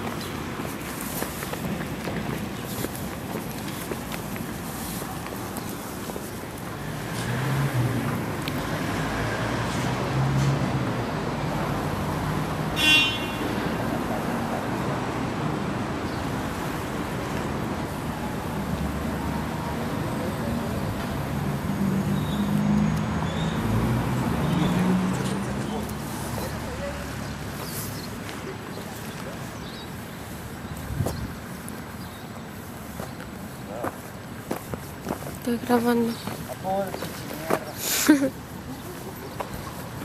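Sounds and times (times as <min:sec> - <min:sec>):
cars passing: 0:00.0 - 0:40.0
road noise rushing: 0:00.0 - 0:40.0.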